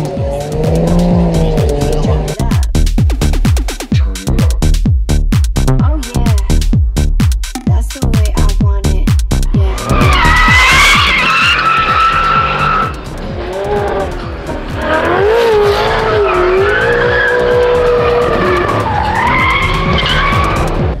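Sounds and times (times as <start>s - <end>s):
car engine noise: 0.0s - 4.9s, 9.0s - 21.0s
tyres squealing: 9.7s - 20.8s.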